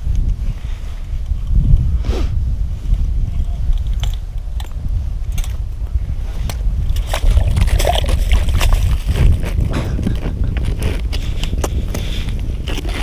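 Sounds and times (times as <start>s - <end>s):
wind rumbling on microphone: 0.0s - 13.0s
water splashing: 7.0s - 9.4s.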